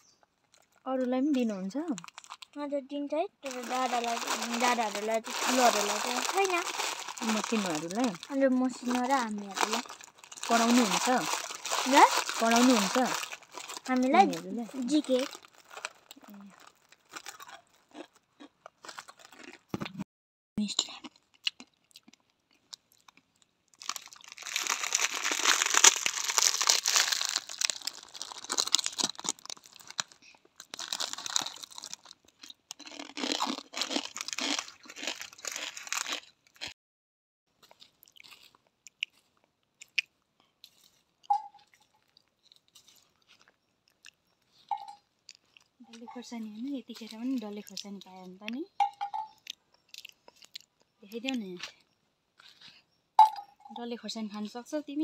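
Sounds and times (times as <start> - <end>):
foil packet crinkling: 0.3 - 2.6, 3.4 - 18.2, 22.7 - 36.7
dry noodles crunching: 2.0 - 2.6, 3.4 - 19.9, 21.0 - 36.8, 37.6 - 50.9.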